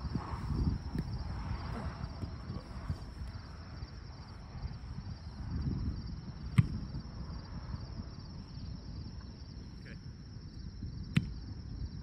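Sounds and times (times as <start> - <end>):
wind buffeting microphone: 0.0 - 12.0
volleyball struck by hand: 11.1 - 11.4.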